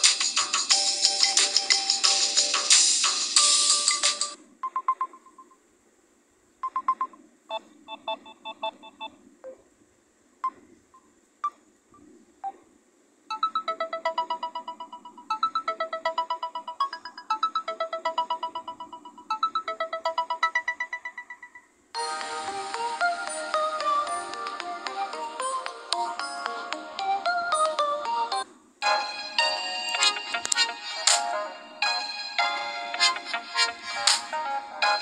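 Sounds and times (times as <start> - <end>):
electronic beep patterns: 6.6 - 9.6, 13.3 - 21.7.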